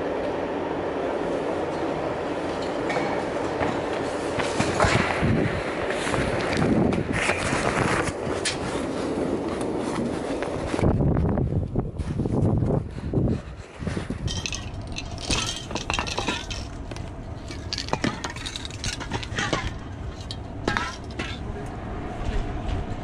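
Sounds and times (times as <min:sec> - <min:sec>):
low rumble: 0:13.9 - 0:23.0
spray cans clinking together: 0:14.3 - 0:21.4.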